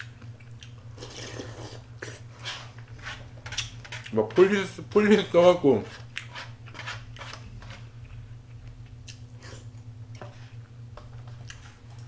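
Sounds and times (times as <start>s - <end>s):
person chewing: 0.0s - 2.6s, 6.1s - 10.2s, 11.3s - 12.0s
steady low hum: 0.0s - 12.0s.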